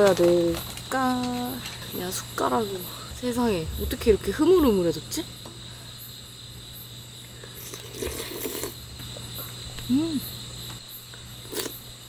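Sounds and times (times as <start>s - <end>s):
crickets chirping: 0.0s - 12.0s
person murmuring while eating: 9.8s - 10.4s.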